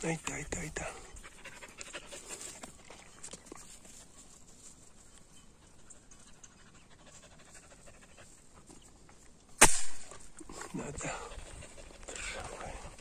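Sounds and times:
light ticks and rustles: 0.0s - 13.0s
dog panting: 0.6s - 3.0s, 5.6s - 8.8s, 10.7s - 13.0s.

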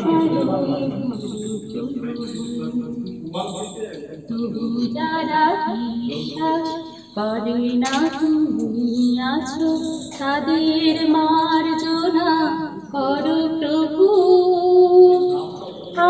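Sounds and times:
person singing: 0.0s - 12.4s.

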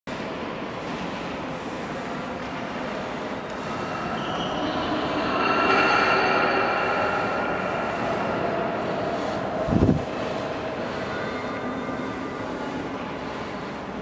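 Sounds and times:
murmur of visitors: 0.1s - 14.0s
sustained sung notes echoing: 3.6s - 13.0s.

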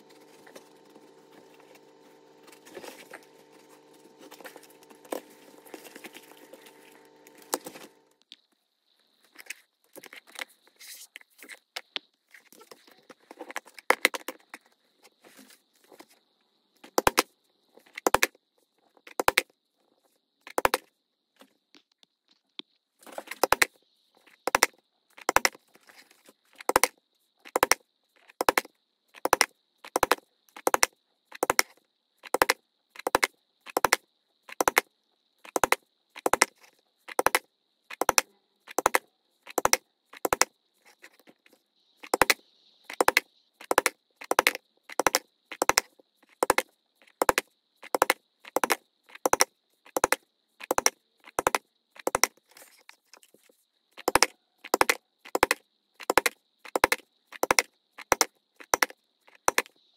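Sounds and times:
multi-tone hum: 0.0s - 8.4s
faint high whine: 0.0s - 13.8s.

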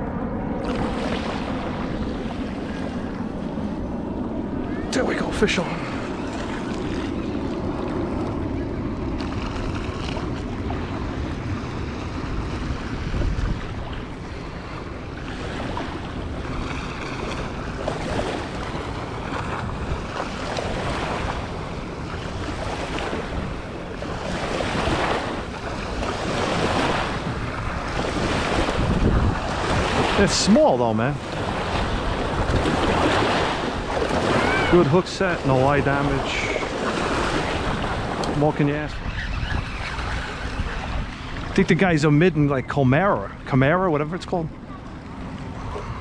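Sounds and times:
wind buffeting microphone: 0.0s - 42.7s
small surf washing on sand: 9.0s - 39.0s.

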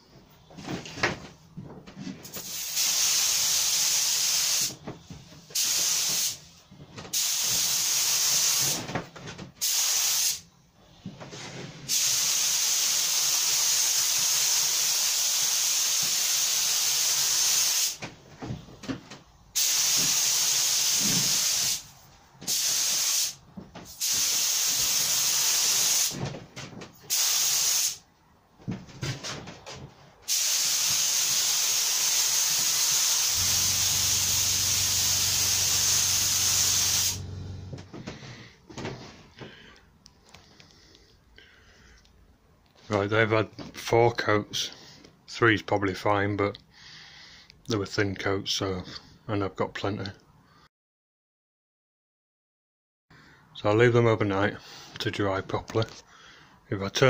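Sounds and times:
spray gun hissing: 2.4s - 4.8s, 5.6s - 6.4s, 7.1s - 8.8s, 9.6s - 10.4s, 11.9s - 18.0s, 19.6s - 21.9s, 22.5s - 26.2s, 27.1s - 28.0s, 30.3s - 37.2s.

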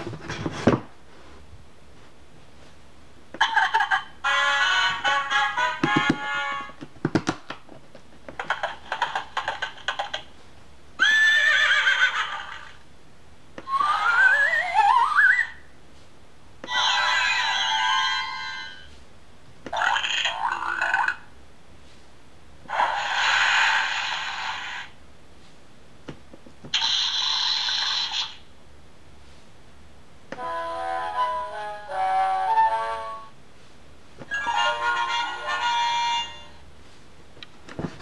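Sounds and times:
electronic horse whinny sound effect: 13.7s - 15.6s, 16.7s - 18.7s, 26.7s - 28.4s
hissy sound effects from small speaker: 22.7s - 25.0s, 26.7s - 28.5s.

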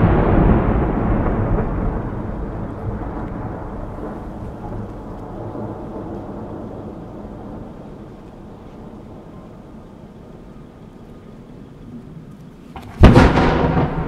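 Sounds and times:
firework burst echo: 12.8s - 14.0s.

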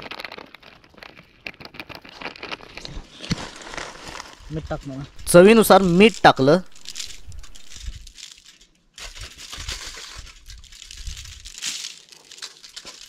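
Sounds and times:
plastic packet and foil crinkling: 0.0s - 13.0s
wind rumbling on microphone: 10.2s - 11.5s.

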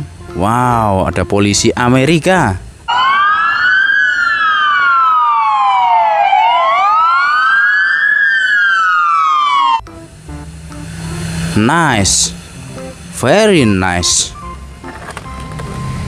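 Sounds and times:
police siren wailing: 2.9s - 9.8s.

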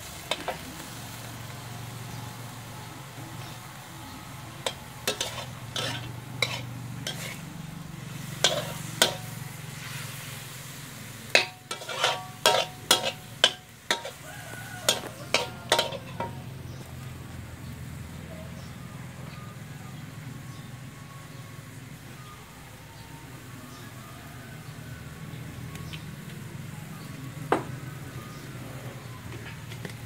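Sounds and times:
frying sizzle: 0.0s - 30.0s
metal spatula scraping a wok: 0.2s - 0.7s, 4.6s - 16.6s.

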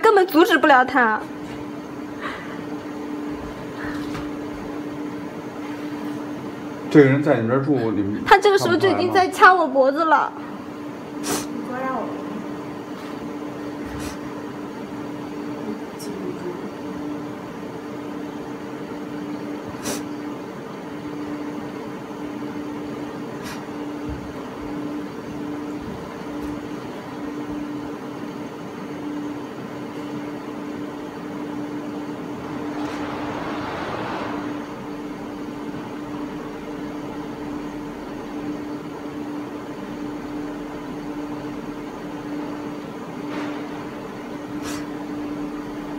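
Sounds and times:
electrical hum: 0.0s - 45.9s
room noise: 10.6s - 45.9s.

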